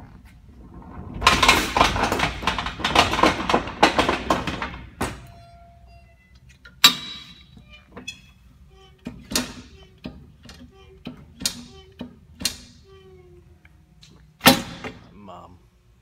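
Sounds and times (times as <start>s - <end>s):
pallet jack rattling clatter: 0.6s - 5.6s.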